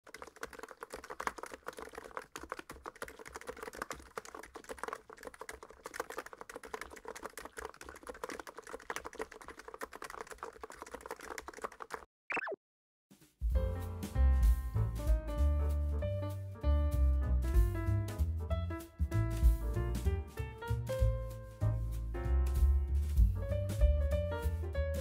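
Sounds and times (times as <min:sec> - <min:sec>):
fast keyboard typing: 0:00.0 - 0:12.1.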